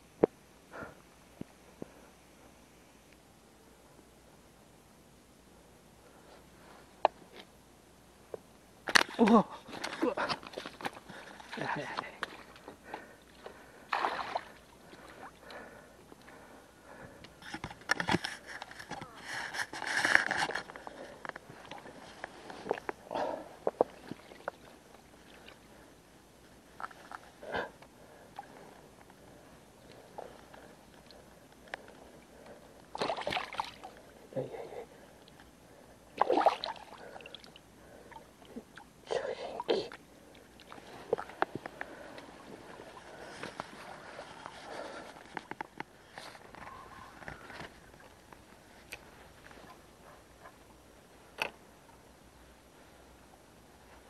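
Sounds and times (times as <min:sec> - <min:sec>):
water splashing and sloshing: 0:09.7 - 0:15.6, 0:23.6 - 0:25.7, 0:31.8 - 0:34.1, 0:36.1 - 0:38.9, 0:39.6 - 0:45.6.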